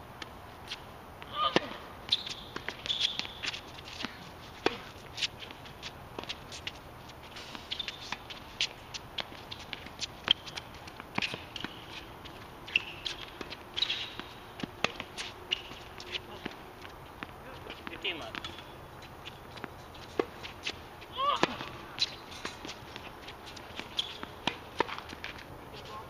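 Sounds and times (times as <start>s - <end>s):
racket striking ball: 1.3s - 5.0s, 12.8s - 15.8s, 19.6s - 20.4s, 21.2s - 22.8s, 23.6s - 25.4s
footsteps on court: 1.5s - 26.0s
shoe squeaks: 2.1s - 5.6s, 6.4s - 16.4s, 21.9s - 24.7s.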